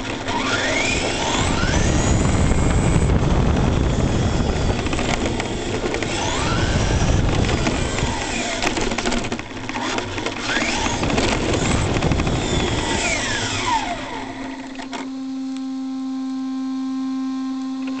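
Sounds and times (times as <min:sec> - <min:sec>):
electric motor whining: 0:00.0 - 0:18.0
steady hum: 0:10.7 - 0:18.0.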